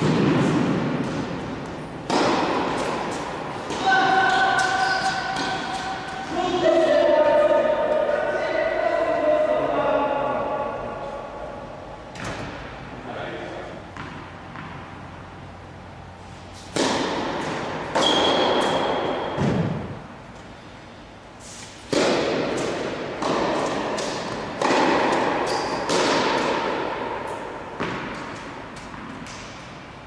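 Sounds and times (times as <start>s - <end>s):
tennis balls bouncing: 0.0s - 8.1s, 13.8s - 15.8s, 16.5s - 20.1s, 21.8s - 29.8s
tennis balls struck by rackets: 0.0s - 8.1s, 13.8s - 20.1s, 21.6s - 29.8s.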